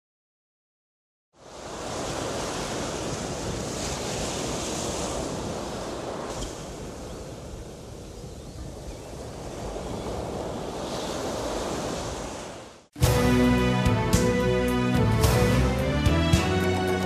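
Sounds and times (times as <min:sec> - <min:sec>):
heavy surf breaking: 0:01.4 - 0:08.0, 0:09.3 - 0:17.0
strong wind: 0:01.4 - 0:12.9.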